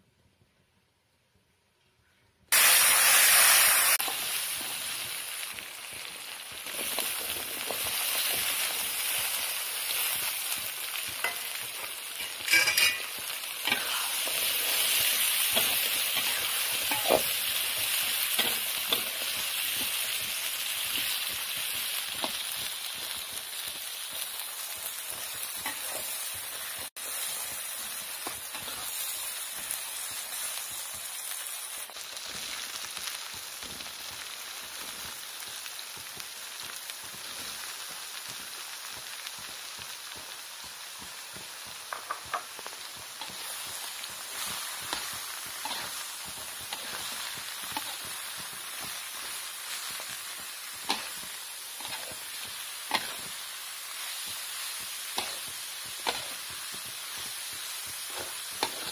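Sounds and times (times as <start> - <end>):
chilies sizzling in hot oil: 2.5 - 58.9
metal spatula scraping pan: 12.2 - 14.3, 15.0 - 17.4, 44.8 - 46.0.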